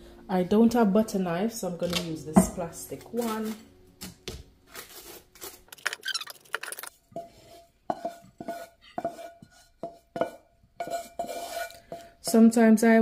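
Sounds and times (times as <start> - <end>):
spatula scraping frying pan: 7.1 - 12.2.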